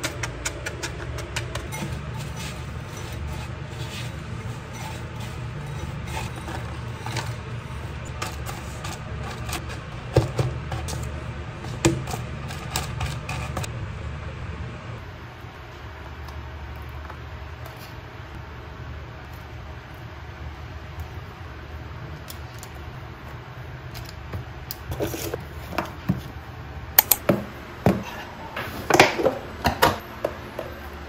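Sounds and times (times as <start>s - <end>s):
spatula scraping plastic tub: 0.0s - 13.7s
steady low hum: 0.0s - 31.0s.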